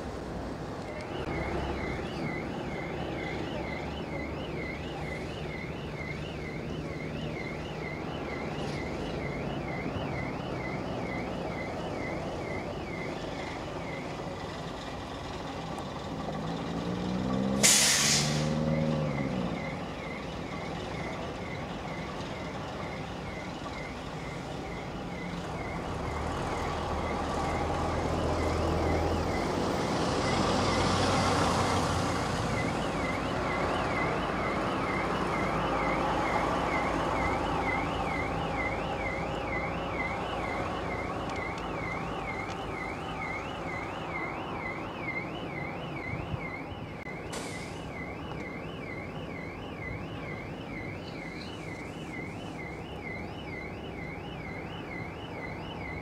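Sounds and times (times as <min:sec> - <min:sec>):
diesel engines running: 0:00.0 - 0:46.0, 0:46.7 - 0:52.9
warbling electronic alarm tone: 0:01.1 - 0:14.4
air brakes hissing: 0:17.5 - 0:18.6, 0:47.3 - 0:48.0.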